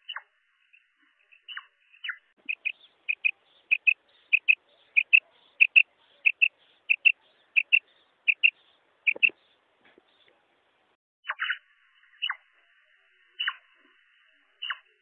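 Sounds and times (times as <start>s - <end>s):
quail calling: 1.5s - 9.4s.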